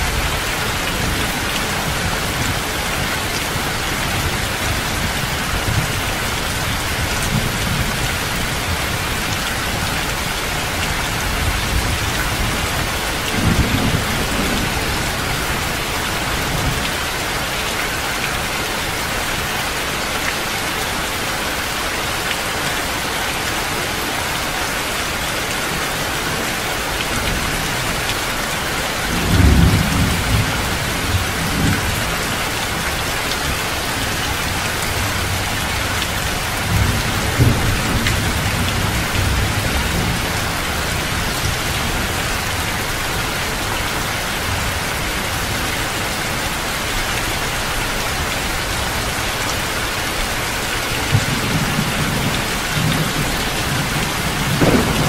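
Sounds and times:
heavy rain falling: 0:00.0 - 0:55.0
low thunder rumbling: 0:51.0 - 0:55.0.

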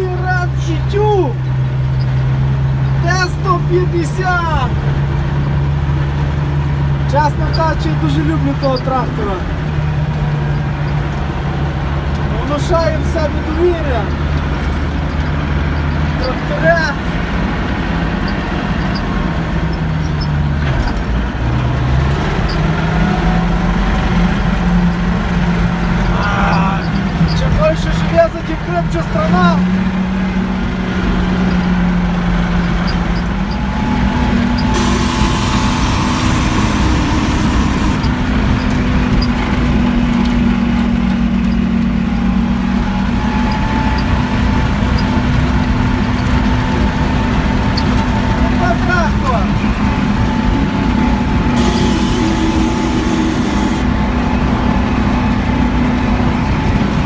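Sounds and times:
tractor diesel engine running: 0:30.1 - 0:57.0.

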